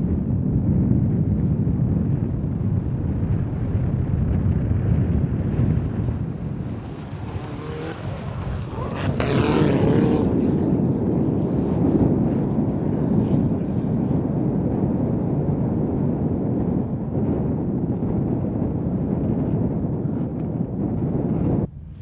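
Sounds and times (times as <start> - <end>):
rally car engine revving: 6.6 - 10.8.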